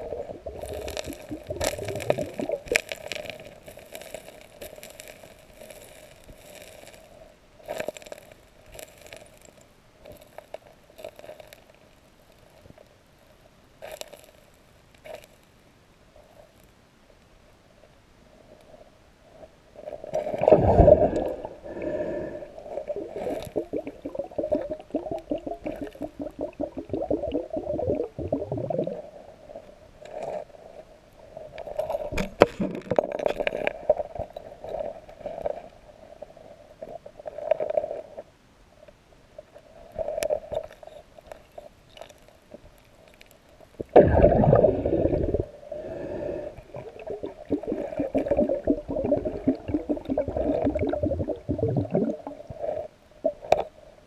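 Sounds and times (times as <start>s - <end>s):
underwater gurgling and bubbling: 0.0s - 3.6s, 20.2s - 29.2s, 43.8s - 53.6s.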